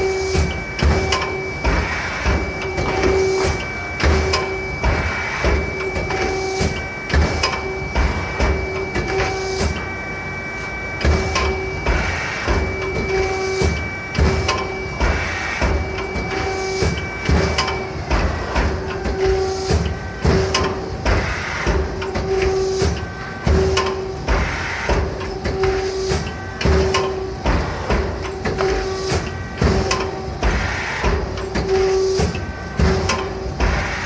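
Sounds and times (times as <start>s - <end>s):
machine knocks and clatter: 0.0s - 9.9s, 11.0s - 34.0s
high machine whine: 0.0s - 34.0s.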